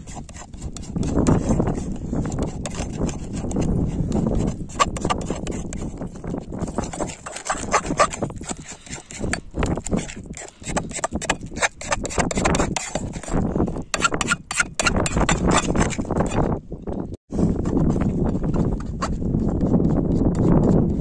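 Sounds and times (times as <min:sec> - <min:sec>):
metal spatula scraping a pan: 0:00.0 - 0:16.4.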